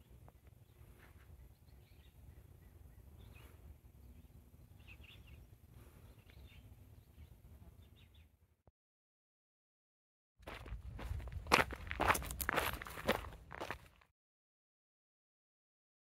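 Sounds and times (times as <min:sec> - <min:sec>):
faint bird chirps: 0:00.0 - 0:08.4.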